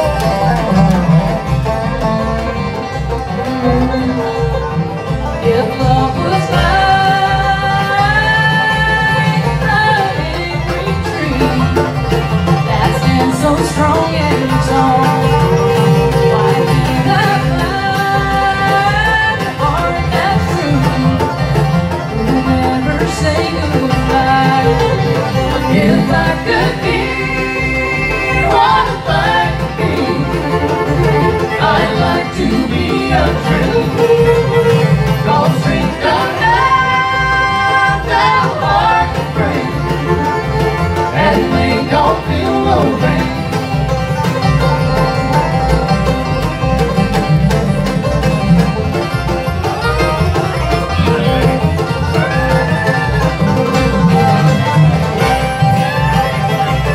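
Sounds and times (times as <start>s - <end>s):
acoustic guitar: 0.0s - 56.9s
banjo rolls: 0.0s - 56.9s
fiddle: 0.0s - 56.9s
mandolin: 0.0s - 56.9s
resonator guitar: 0.0s - 56.9s
upright bass: 0.0s - 56.9s.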